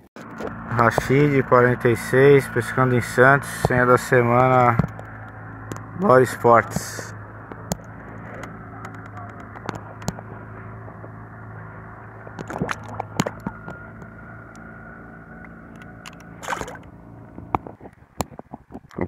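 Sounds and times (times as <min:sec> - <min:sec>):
steady low hum: 0:00.2 - 0:19.0
water splashing and sloshing: 0:12.4 - 0:13.9, 0:16.0 - 0:17.0.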